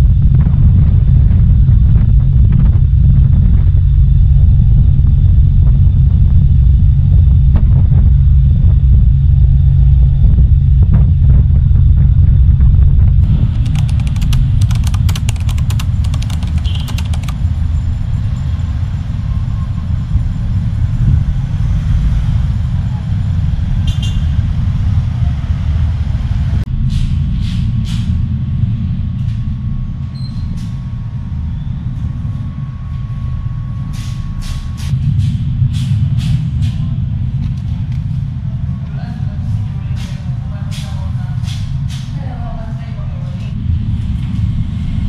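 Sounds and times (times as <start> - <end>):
road traffic rumble: 0.0 - 33.0
scattered clicks and knocks: 13.2 - 17.4.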